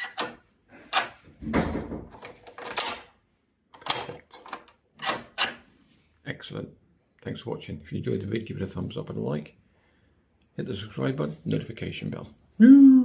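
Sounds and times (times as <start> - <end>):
lock bolt clicking and clunking: 0.0 - 1.2, 2.1 - 5.6.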